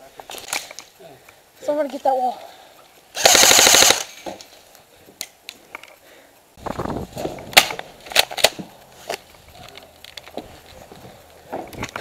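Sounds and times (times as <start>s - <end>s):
airsoft machine gun burst: 3.2s - 4.2s
sharp cracks: 3.2s - 4.5s, 6.6s - 10.4s.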